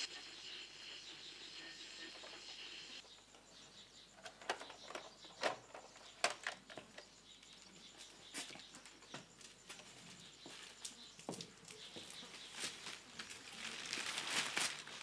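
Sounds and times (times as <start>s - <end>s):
newspaper crackling and rustling: 12.3s - 15.0s.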